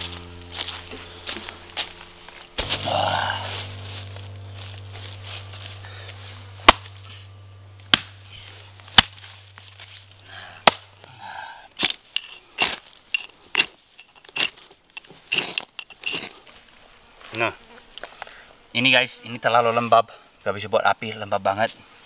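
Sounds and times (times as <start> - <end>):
hatchet chopping into log: 7.9 - 8.1, 10.6 - 10.9.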